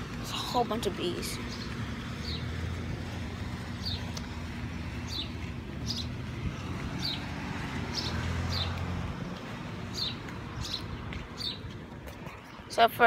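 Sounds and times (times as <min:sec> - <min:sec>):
bird chirping: 0:05.0 - 0:06.2, 0:09.9 - 0:11.7.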